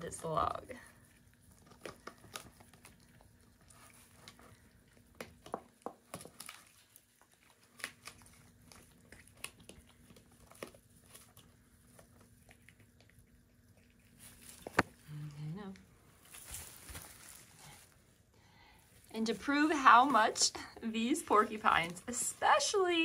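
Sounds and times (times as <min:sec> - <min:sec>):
teeth gnawing on wood: 0:00.8 - 0:15.1.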